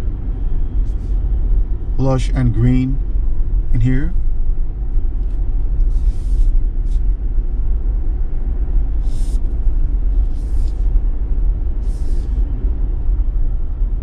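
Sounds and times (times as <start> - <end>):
car engine and tyre rumble: 0.0 - 14.0
short hisses: 5.9 - 7.0, 9.0 - 9.5, 11.8 - 12.4.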